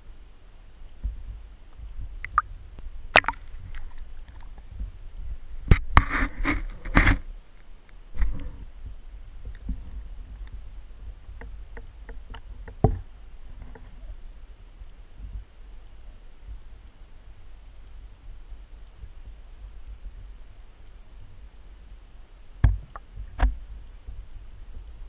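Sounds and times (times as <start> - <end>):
underwater low rumble: 0.0 - 25.0.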